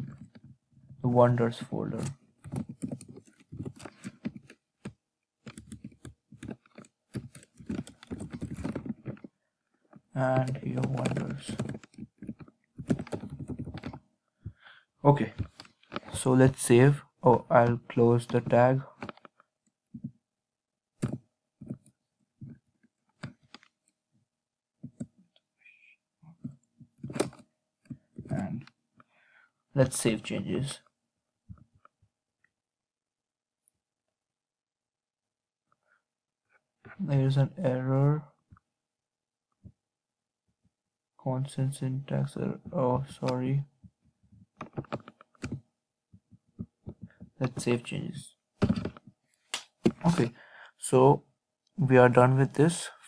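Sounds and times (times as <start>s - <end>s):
keyboard and mouse clicks: 1.9s - 9.3s, 10.3s - 14.0s, 21.0s - 22.6s, 26.4s - 28.5s, 44.6s - 45.6s.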